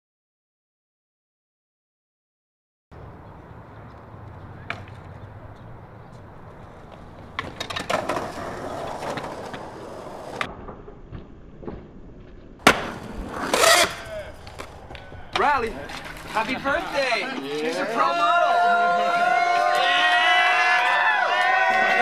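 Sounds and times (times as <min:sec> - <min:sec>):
skateboard wheels rolling on concrete: 0:02.9 - 0:22.0
skateboard clacks: 0:03.9 - 0:11.0, 0:12.6 - 0:17.6
skateboard landing impact: 0:07.0 - 0:16.3.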